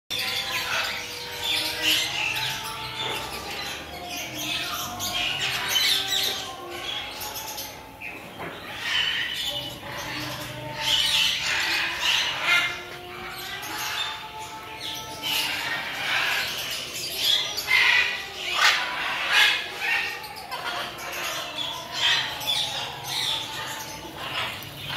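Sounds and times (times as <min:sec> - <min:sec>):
caged birds squawking: 0:00.1 - 0:24.9.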